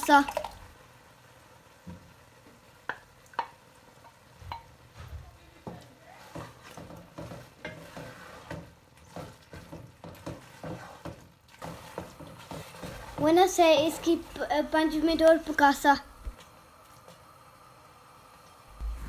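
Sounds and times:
wooden spoon stirring in metal pot: 1.8 - 17.2.

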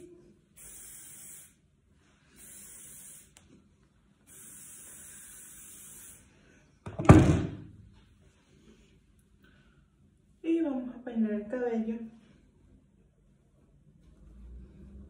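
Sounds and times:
aerosol can spraying: 0.6 - 1.6, 2.3 - 3.6, 4.2 - 6.3
loud thump: 6.9 - 7.8.

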